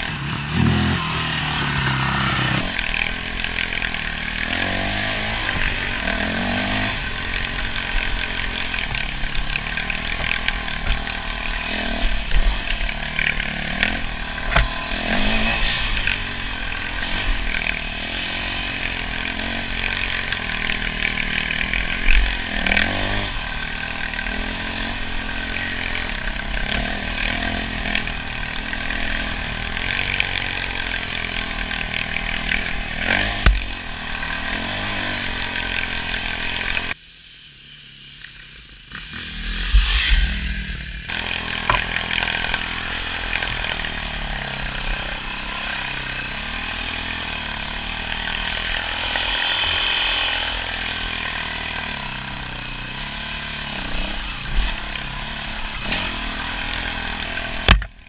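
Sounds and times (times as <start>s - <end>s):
dirt bike engine revving: 0.0s - 58.0s
sharp knocks: 57.7s - 58.0s.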